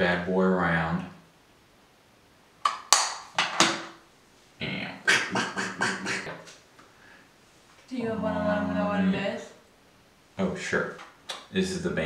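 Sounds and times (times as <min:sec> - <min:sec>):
breathy laughter: 0:05.1 - 0:06.3.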